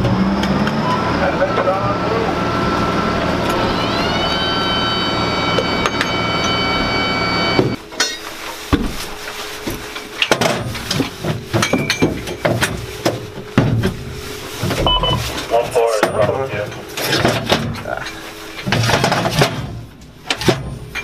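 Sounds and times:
machinery running with whine: 0.0 - 8.6, 9.2 - 21.0
metallic clanks and knocks: 10.2 - 14.0, 16.0 - 21.0.

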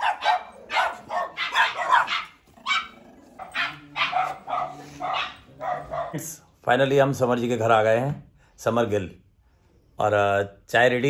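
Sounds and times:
dog barking: 0.0 - 6.2.

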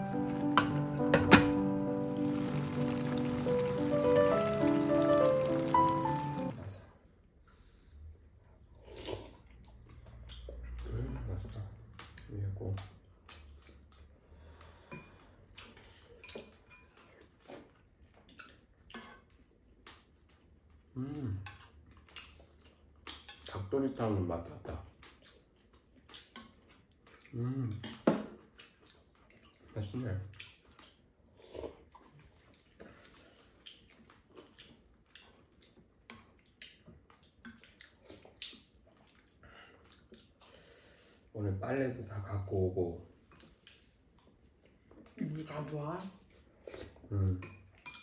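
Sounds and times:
chewing: 7.6 - 23.7, 24.7 - 40.8, 43.2 - 45.2.

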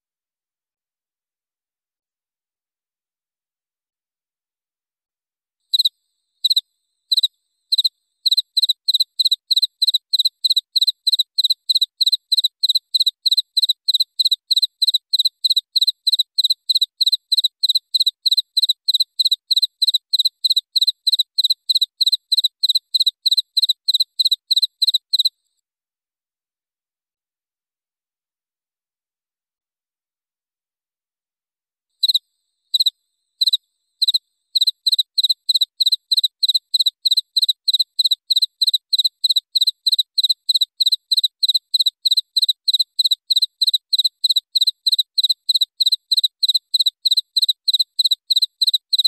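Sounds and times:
cricket chirping: 5.7 - 25.4, 32.0 - 49.0.

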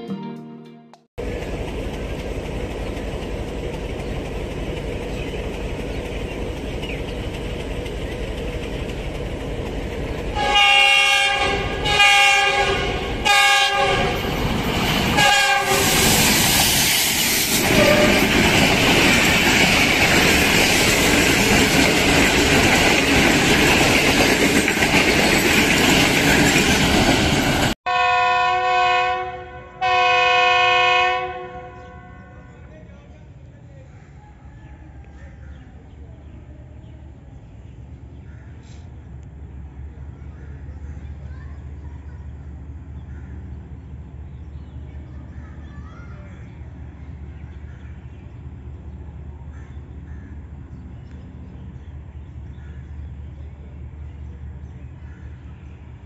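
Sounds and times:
train wheel noise: 1.2 - 27.8
locomotive engine rumble: 1.2 - 28.1
locomotive horn blasts: 10.3 - 14.3, 15.2 - 16.1, 17.6 - 18.4, 27.9 - 32.7.

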